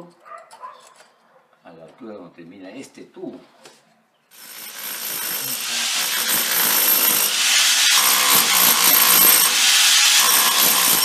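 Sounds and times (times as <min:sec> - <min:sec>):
rotary hammer chiselling brick: 0:04.4 - 0:11.0.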